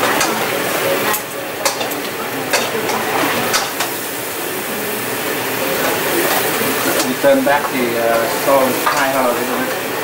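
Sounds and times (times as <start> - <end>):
crab legs sizzling in skillet: 0.0 - 10.0.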